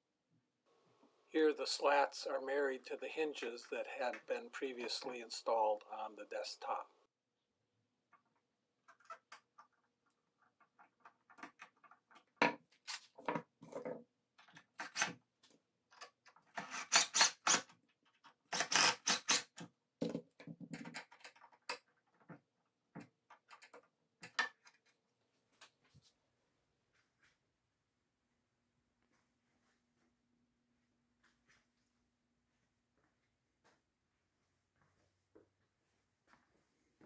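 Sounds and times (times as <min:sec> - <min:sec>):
cordless drill driving screws: 0:18.5 - 0:19.5.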